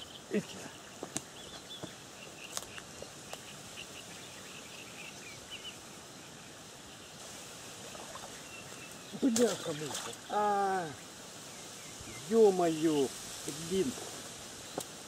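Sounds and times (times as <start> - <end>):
wind hiss: 0.0 - 15.0.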